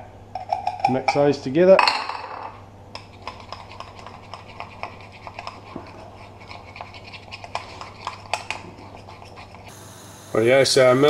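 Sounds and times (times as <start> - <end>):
utensil scraping and clicking in cup: 3.0 - 9.7.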